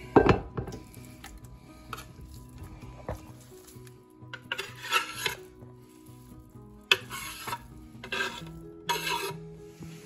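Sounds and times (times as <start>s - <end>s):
soft background music: 0.0s - 10.0s
knife scraping on wooden board: 4.3s - 5.5s, 6.9s - 9.4s.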